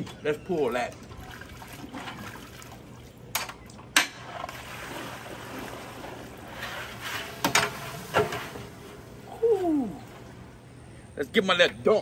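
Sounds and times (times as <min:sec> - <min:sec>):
water streaming and dripping: 0:00.0 - 0:10.8.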